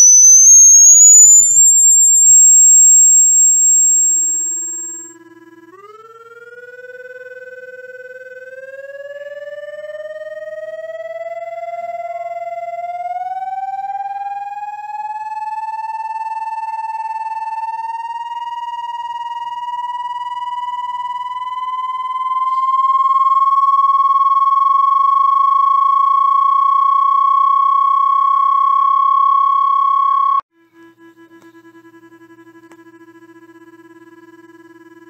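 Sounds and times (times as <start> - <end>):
electronic tone rising in pitch: 0.0 - 5.1, 20.6 - 30.4
lower steady electronic tone: 0.0 - 5.1, 5.8 - 30.4.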